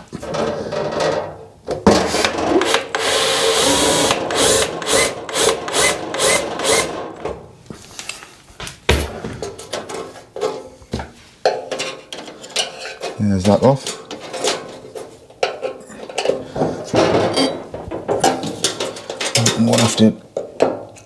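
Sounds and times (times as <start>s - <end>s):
cordless drill drilling metal: 2.0s - 7.2s.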